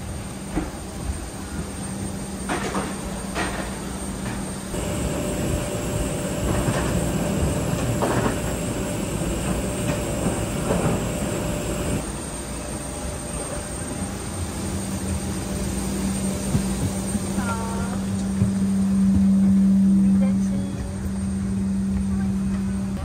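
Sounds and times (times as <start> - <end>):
airliner mechanical drone: 0.0 - 23.0
faint steady whine: 4.0 - 14.7.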